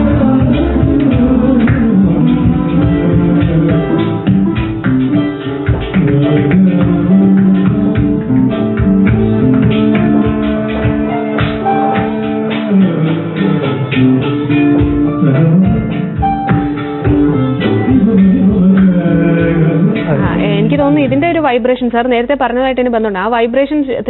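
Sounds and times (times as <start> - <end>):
man singing long held notes: 0.0 - 4.4, 5.9 - 8.6, 10.5 - 16.5, 17.3 - 21.2
hand drums: 0.0 - 21.6
plucked guitar: 0.0 - 23.4.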